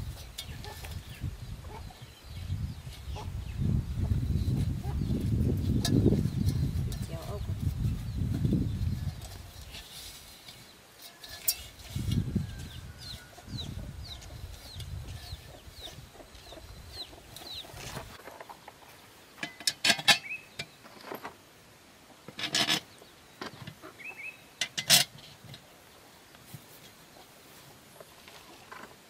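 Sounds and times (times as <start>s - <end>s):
bird chirping: 0.1s - 10.8s, 11.8s - 21.0s, 22.8s - 24.6s
metal rim clinking and knocking: 10.5s - 12.7s.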